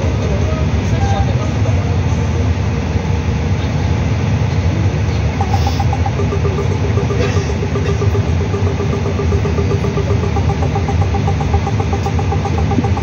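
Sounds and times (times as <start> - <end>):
jet engines rumbling with hiss: 0.0 - 13.0
faint rapidly pulsing tone: 5.2 - 13.0.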